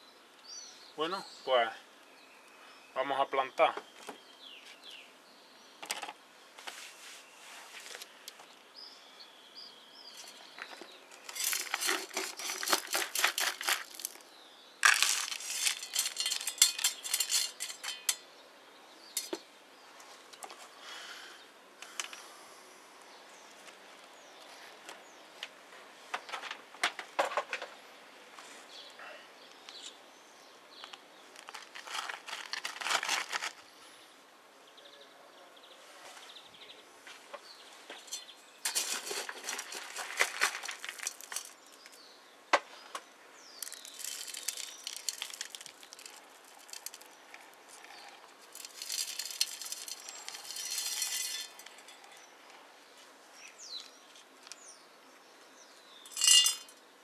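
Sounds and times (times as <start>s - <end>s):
gritty soil rattling in plastic pot: 10.1s - 18.3s, 19.1s - 19.4s, 31.3s - 33.6s, 37.9s - 42.1s, 43.4s - 52.4s, 56.1s - 56.8s.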